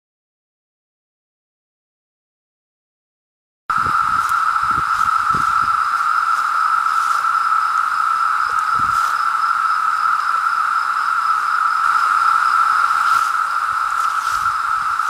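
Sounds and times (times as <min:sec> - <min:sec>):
cicadas droning: 0:03.7 - 0:15.0.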